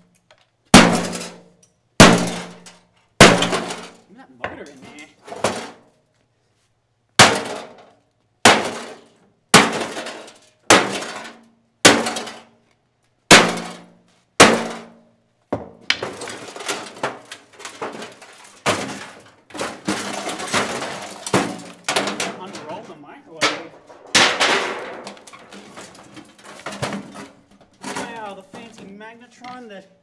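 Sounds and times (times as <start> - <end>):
metallic strikes on sheet metal: 0.8 - 4.0, 13.3 - 15.0, 23.4 - 25.4
clatter of knocks and rattling: 15.6 - 28.8.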